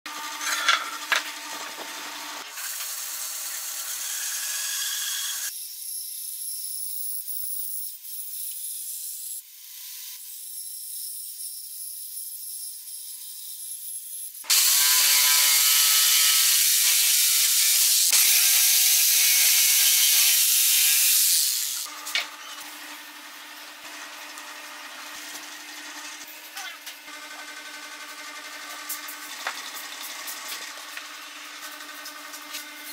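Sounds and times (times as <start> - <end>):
bandsaw cutting wood: 0.1 - 5.5, 14.4 - 32.9.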